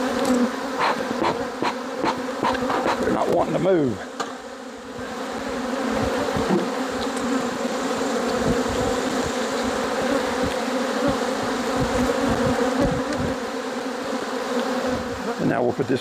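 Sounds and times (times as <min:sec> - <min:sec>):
honey bees buzzing: 0:00.0 - 0:16.0.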